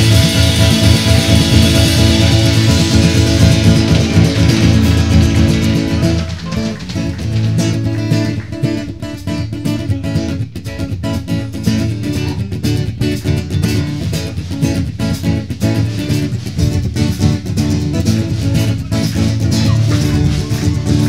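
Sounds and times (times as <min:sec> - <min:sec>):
live band playing worship music: 0:00.0 - 0:08.0
strummed guitar: 0:00.0 - 0:21.0.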